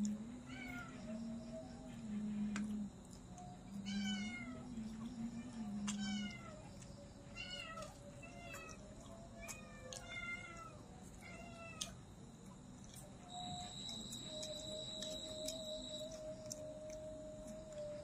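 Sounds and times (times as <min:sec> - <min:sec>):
cat meowing: 0:09.4 - 0:12.0.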